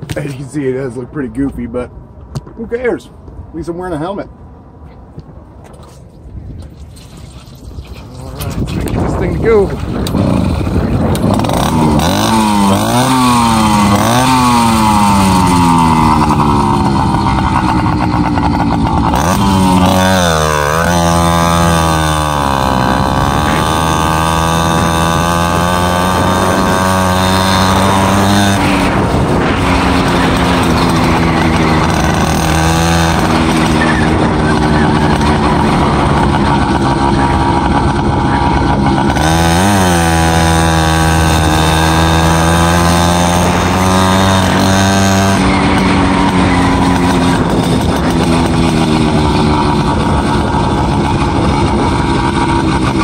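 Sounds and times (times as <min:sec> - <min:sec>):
two-stroke engine revving: 0:08.0 - 0:53.0.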